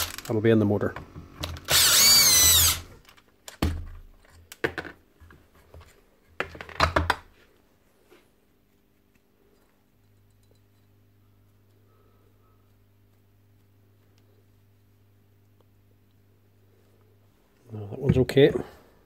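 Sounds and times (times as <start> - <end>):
cordless drill whirring: 1.4 - 3.0.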